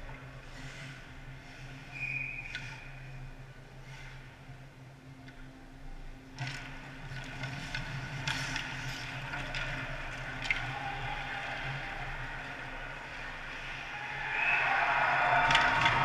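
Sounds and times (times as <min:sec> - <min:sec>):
low arena hum: 0:00.0 - 0:16.0
hockey sticks and puck clacking: 0:06.4 - 0:16.0.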